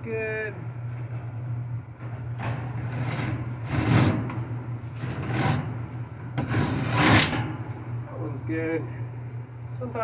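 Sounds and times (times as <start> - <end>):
metal grille scraping in frame: 2.3 - 7.7.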